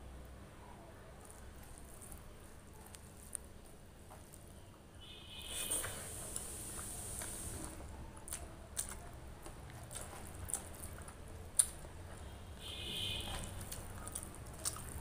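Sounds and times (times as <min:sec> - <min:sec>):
fingers squishing rice: 0:01.0 - 0:04.6
chewing food: 0:01.1 - 0:04.6, 0:05.8 - 0:15.0.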